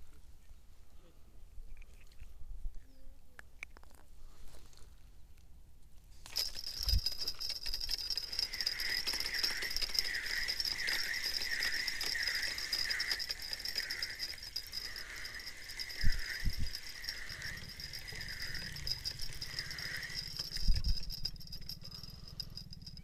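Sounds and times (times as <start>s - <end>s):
fishing reel whirring: 6.3s - 23.0s.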